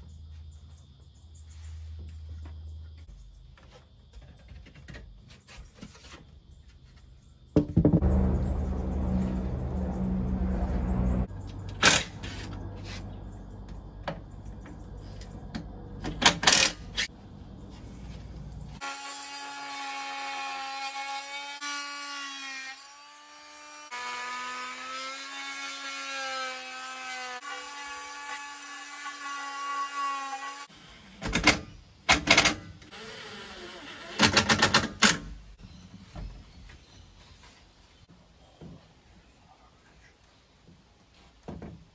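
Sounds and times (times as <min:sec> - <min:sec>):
cordless drill motor whine: 0:32.8 - 0:34.2.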